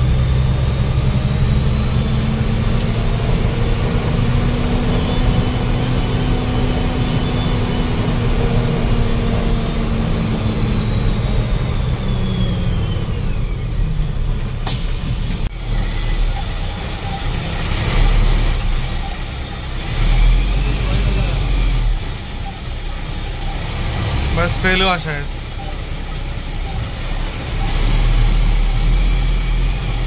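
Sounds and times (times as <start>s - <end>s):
bus engine and road rumble: 0.0s - 30.0s
drivetrain whine: 0.0s - 30.0s.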